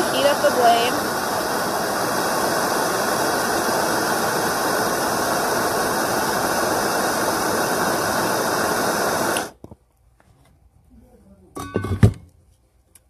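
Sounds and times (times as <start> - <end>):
propane torch hissing: 0.0 - 9.6.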